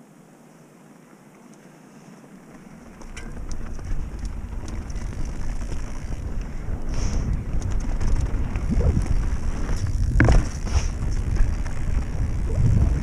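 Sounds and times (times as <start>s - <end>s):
bike rattling: 2.4s - 13.0s
tyres rumbling on gravel: 2.4s - 13.0s
bike knocking on rocks: 2.5s - 13.0s
wind buffeting microphone: 2.8s - 13.0s.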